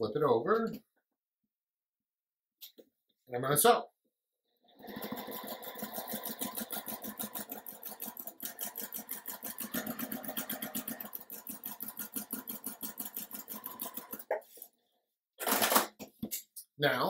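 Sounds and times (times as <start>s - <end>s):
sewing machine stitching: 4.8s - 14.6s.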